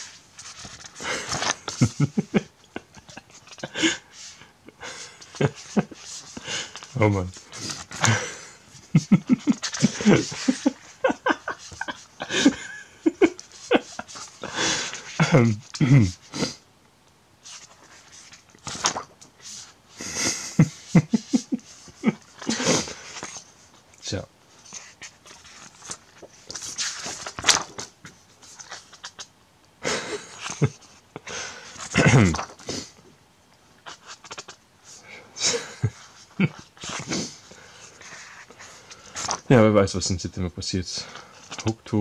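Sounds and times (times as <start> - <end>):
paper pages rustling: 0.0 - 2.4, 5.2 - 12.6, 13.2 - 15.8, 17.4 - 19.7, 20.9 - 23.5, 24.6 - 29.3, 31.7 - 32.8, 33.9 - 34.6, 37.8 - 39.5, 41.4 - 41.7
person laughing: 1.0 - 4.1, 8.0 - 16.2, 20.0 - 22.9, 29.8 - 32.4, 35.4 - 36.6.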